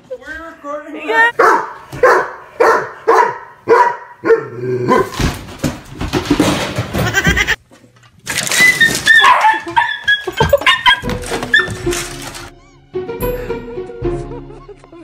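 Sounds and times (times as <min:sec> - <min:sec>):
dog barking: 0:01.4 - 0:05.2, 0:09.1 - 0:11.8.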